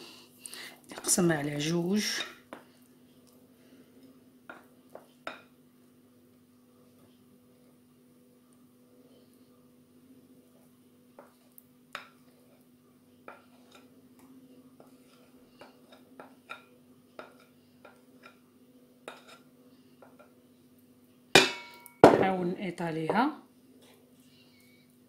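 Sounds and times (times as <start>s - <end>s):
faint steady hum: 0.0s - 25.0s
spatula scraping bowl: 13.3s - 13.9s, 14.8s - 16.6s, 19.1s - 19.4s.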